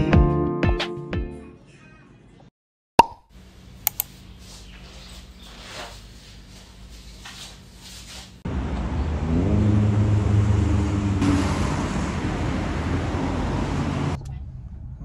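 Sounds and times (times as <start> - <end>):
road noise: 8.3 - 15.0
vehicle engine pulling away: 8.4 - 15.0.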